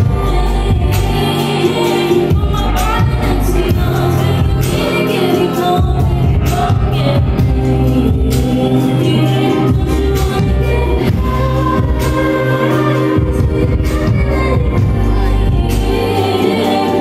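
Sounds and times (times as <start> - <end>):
bass notes: 0.0 - 17.0
person singing: 0.0 - 17.0.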